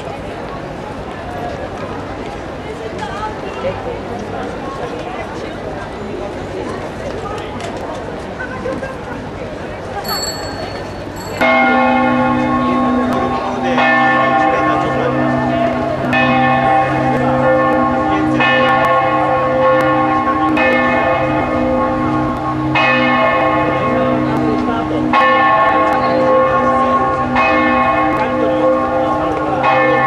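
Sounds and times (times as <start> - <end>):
church bells ringing: 10.0 - 30.0.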